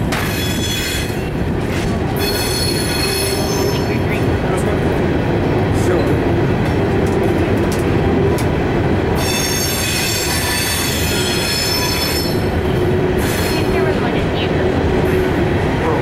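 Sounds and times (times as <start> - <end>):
steel wheels rolling on rail: 0.0 - 16.0
high-pitched wheel squeal: 2.2 - 4.0, 9.2 - 12.5.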